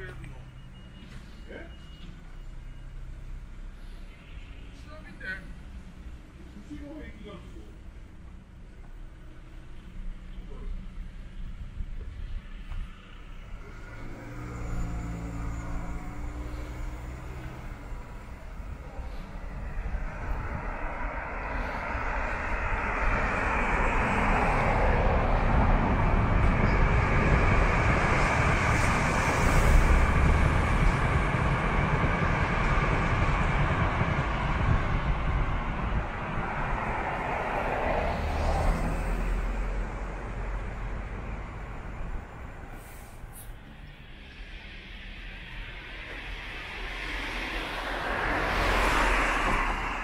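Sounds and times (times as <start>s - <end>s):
electric train passing: 11.6s - 50.0s.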